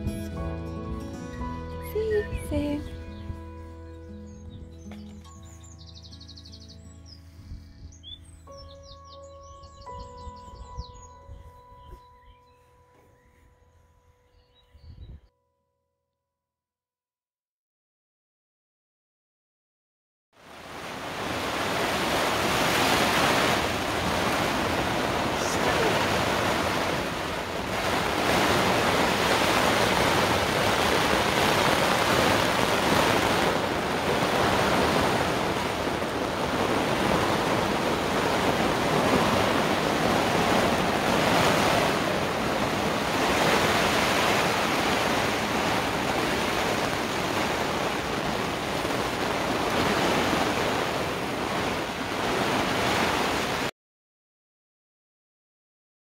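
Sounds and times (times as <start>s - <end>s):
heavy rain on canvas roof: 20.4s - 53.7s.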